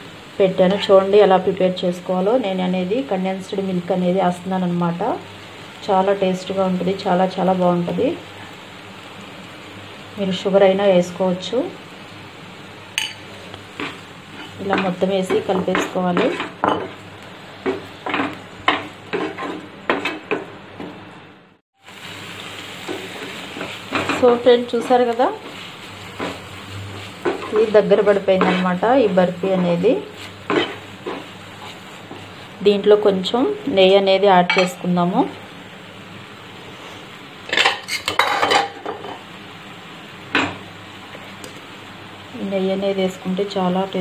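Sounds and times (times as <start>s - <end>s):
mixture sizzling in a pan: 0.0s - 21.2s, 21.8s - 44.0s
spoon clinking against dishes: 13.0s - 13.3s
wooden spatula scraping a pan: 13.4s - 17.0s, 17.6s - 20.3s, 22.8s - 32.5s.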